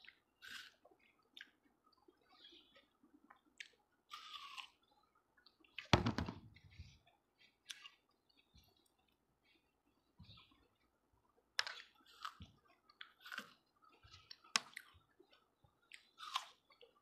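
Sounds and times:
watermelon being chewed: 0:00.0 - 0:05.9, 0:06.5 - 0:17.0
loud knock: 0:06.0 - 0:06.4.

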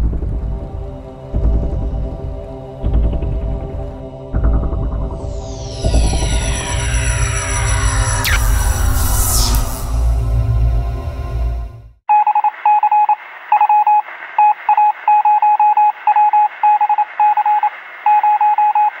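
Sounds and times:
rumbling electronic sound effect: 0:00.0 - 0:12.0
short electronic beeps: 0:05.4 - 0:10.2, 0:12.1 - 0:19.0.

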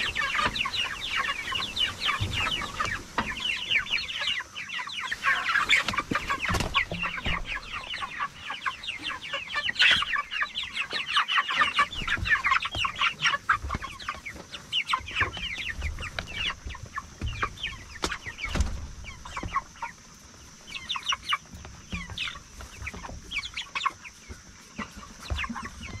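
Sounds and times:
chickens calling: 0:00.0 - 0:26.0.

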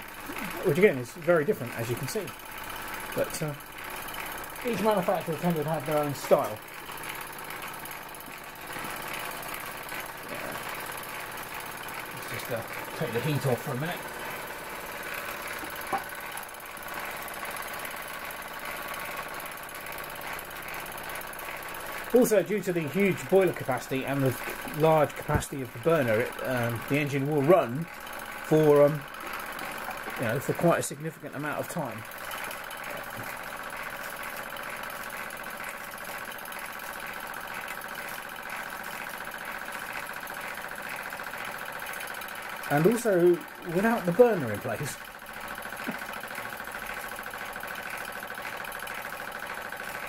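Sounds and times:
model steam engine running: 0:00.0 - 0:50.0
steam engine hissing and beating: 0:21.7 - 0:30.7.

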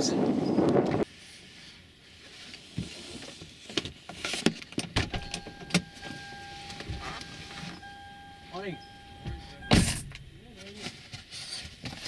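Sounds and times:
clicks and knocks inside car cabin: 0:03.8 - 0:10.4
steady electronic tone: 0:05.2 - 0:10.6.

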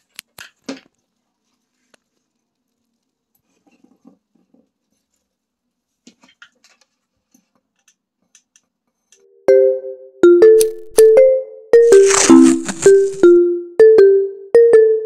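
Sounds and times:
mesh rustling on glass bowl: 0:11.8 - 0:13.2.

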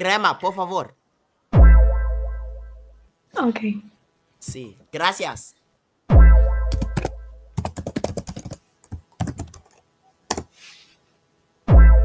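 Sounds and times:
deep bass boom: 0:01.6 - 0:02.8, 0:06.1 - 0:06.7, 0:11.7 - 0:12.0
computer keyboard typing: 0:06.7 - 0:10.5.

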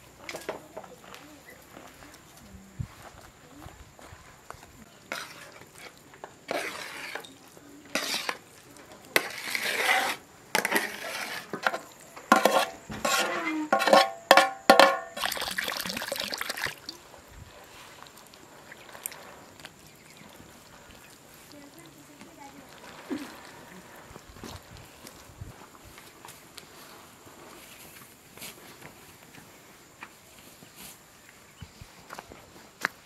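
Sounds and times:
metal spoon scraping metal tray: 0:05.1 - 0:05.9, 0:06.5 - 0:08.4, 0:09.1 - 0:15.2
metal clanks: 0:11.6 - 0:15.2.

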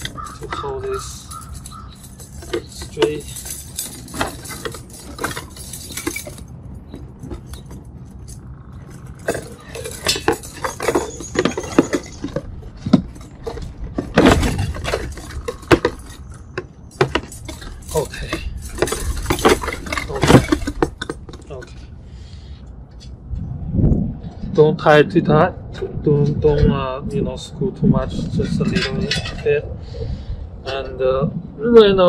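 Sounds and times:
bicycle spokes clinking: 0:00.0 - 0:21.9.

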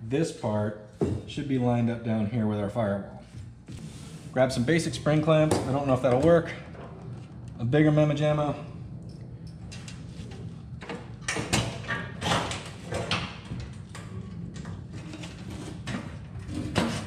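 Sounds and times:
steady low hum: 0:00.0 - 0:17.0
sheet metal scraping on bench: 0:15.0 - 0:17.0.

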